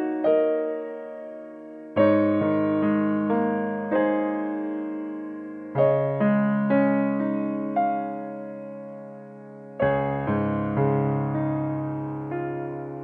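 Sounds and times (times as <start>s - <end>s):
slow piano music: 0.0s - 13.0s.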